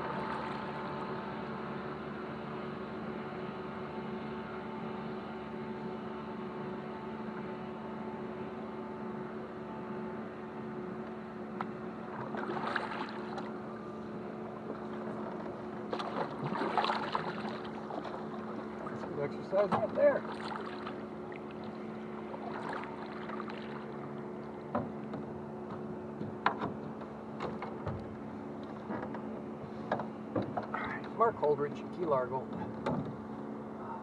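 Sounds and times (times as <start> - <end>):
steady hum: 0.0 - 34.0
paddle strokes in water: 11.6 - 33.4.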